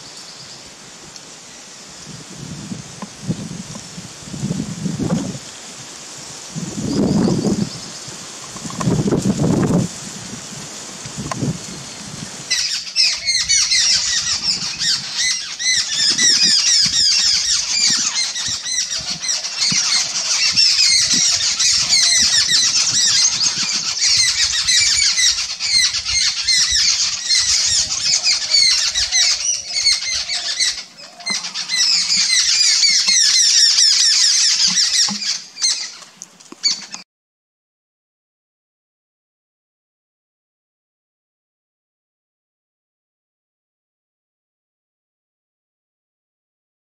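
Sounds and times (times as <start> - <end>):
birds chirping: 6.7 - 9.0, 11.7 - 37.0.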